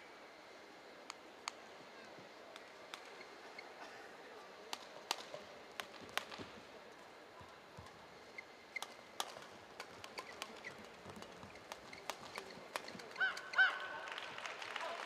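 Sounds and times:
rackets striking shuttlecock: 2.5s - 3.3s, 4.7s - 6.6s, 7.8s - 13.6s
shoes squeaking on court: 3.0s - 3.8s, 7.7s - 13.8s.

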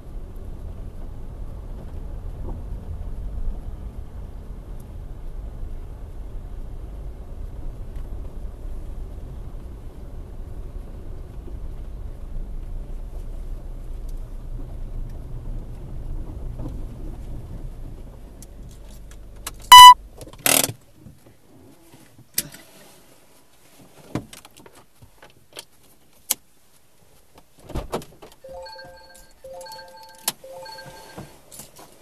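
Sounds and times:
car road rumble: 0.0s - 22.3s
short electronic beep: 19.7s - 20.0s, 28.5s - 31.3s.

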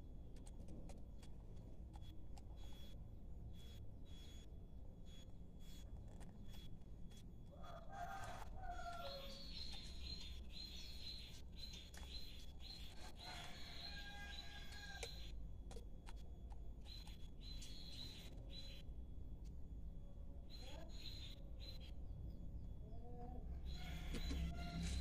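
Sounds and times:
birds chirping: 6.4s - 15.4s, 16.1s - 19.0s, 20.3s - 25.0s.

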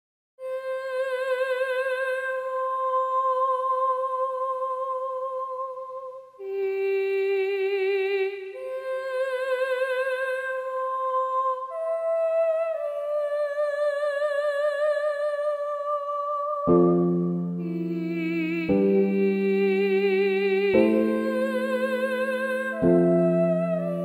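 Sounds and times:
slow melody with vibrato: 15.4s - 24.0s.

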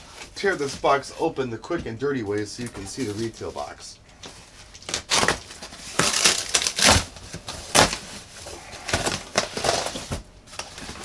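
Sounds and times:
cardboard box tearing: 4.9s - 11.0s.

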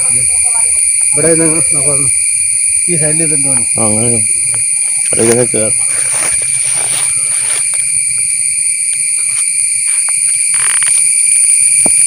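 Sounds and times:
insects chirping: 0.0s - 12.0s
soft footsteps: 5.8s - 8.3s, 8.9s - 11.1s.

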